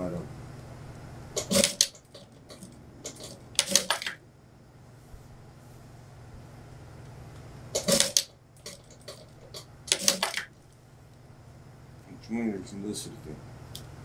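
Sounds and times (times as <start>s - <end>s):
machine low hum: 0.0s - 14.0s
sewing machine stitching: 1.4s - 1.9s, 7.8s - 9.2s.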